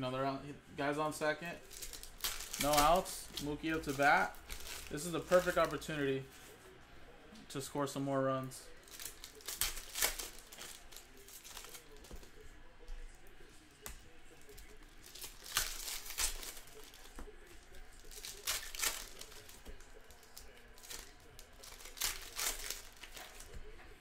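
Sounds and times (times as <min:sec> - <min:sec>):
wrappers tearing and crinkling: 0:01.6 - 0:06.1, 0:08.8 - 0:12.5, 0:14.3 - 0:23.6
cards being handled: 0:01.6 - 0:06.6, 0:13.8 - 0:23.7.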